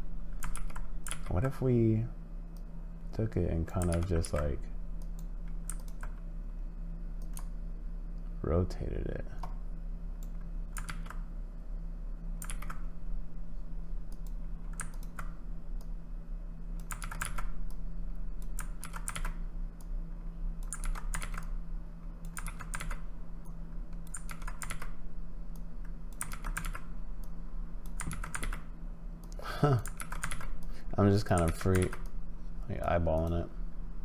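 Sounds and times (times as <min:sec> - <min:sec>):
steady low hum: 0:00.0 - 0:34.0
computer keyboard keystrokes: 0:00.4 - 0:01.3, 0:03.8 - 0:06.2, 0:07.2 - 0:07.5, 0:10.2 - 0:11.2, 0:12.4 - 0:12.8, 0:14.1 - 0:15.9, 0:16.8 - 0:17.8, 0:18.4 - 0:19.9, 0:20.6 - 0:21.5, 0:22.2 - 0:23.0, 0:24.0 - 0:28.6, 0:29.2 - 0:30.7, 0:31.3 - 0:32.2.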